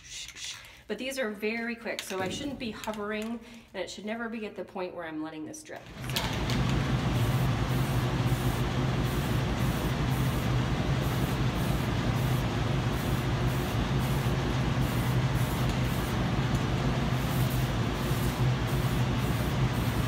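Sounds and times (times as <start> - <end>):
exhaust fan rushing hum: 5.8 - 20.0
aerosol can spraying: 7.1 - 20.0.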